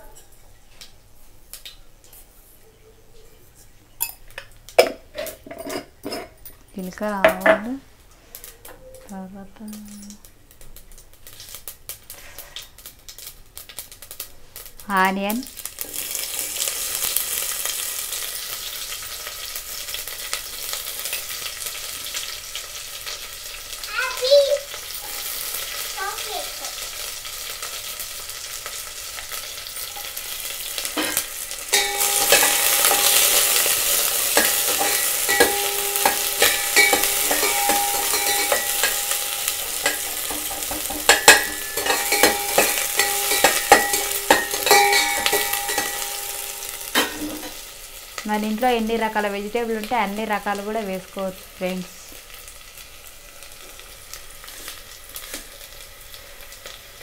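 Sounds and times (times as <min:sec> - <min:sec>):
onions sizzling in hot oil: 0:04.0 - 0:57.0
knocks against a pot: 0:39.9 - 0:46.2.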